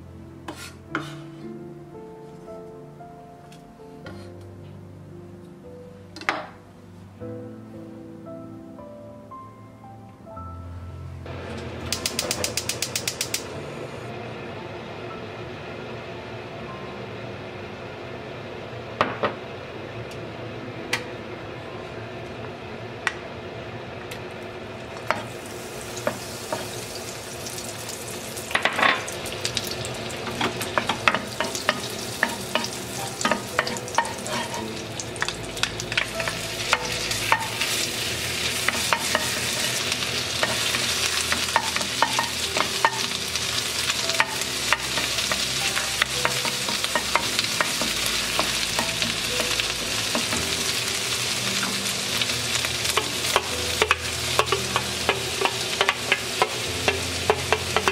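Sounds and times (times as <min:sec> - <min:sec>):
butter sizzling in a wok: 0:24.9 - 0:57.9.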